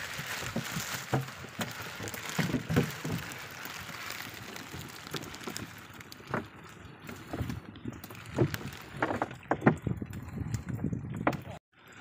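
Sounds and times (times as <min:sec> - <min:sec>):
knocks and thumps on wooden deck: 0:08.3 - 0:10.0.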